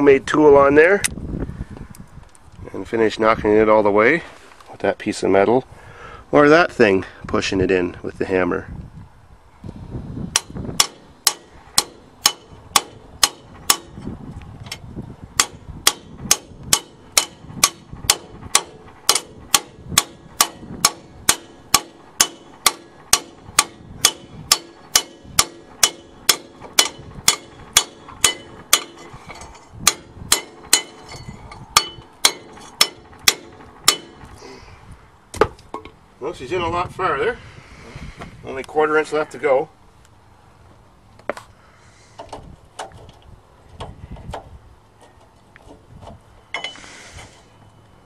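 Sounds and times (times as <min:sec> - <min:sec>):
hammer clanking on steel: 0:10.3 - 0:14.0, 0:15.4 - 0:34.4, 0:46.5 - 0:46.8.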